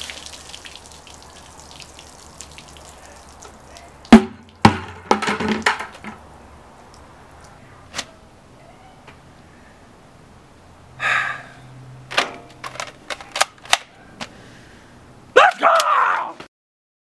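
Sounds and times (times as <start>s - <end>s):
water dripping and trickling: 0.0s - 4.7s, 6.7s - 7.6s
sharp knocks: 4.1s - 6.2s.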